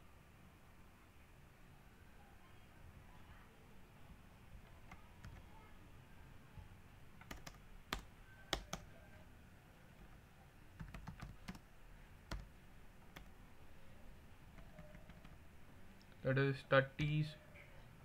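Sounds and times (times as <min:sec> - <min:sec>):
computer keyboard typing: 0:04.6 - 0:05.5, 0:07.2 - 0:08.9, 0:10.8 - 0:11.6, 0:12.3 - 0:12.5, 0:13.1 - 0:13.4, 0:14.5 - 0:15.4.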